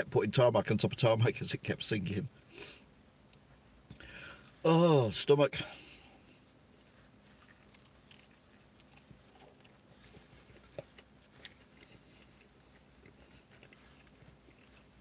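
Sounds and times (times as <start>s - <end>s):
faint chewing: 6.0s - 15.0s.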